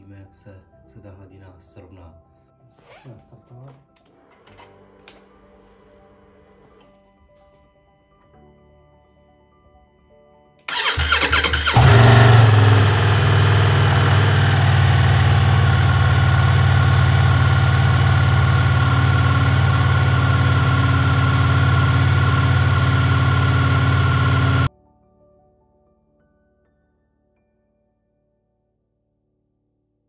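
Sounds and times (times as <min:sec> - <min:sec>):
electric starter cranking: 0:10.7 - 0:24.7
motorcycle engine idling: 0:10.7 - 0:24.7.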